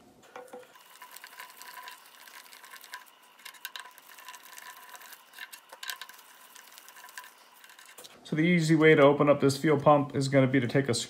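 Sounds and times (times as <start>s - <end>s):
metal screws clicking and scraping: 0.4s - 8.1s.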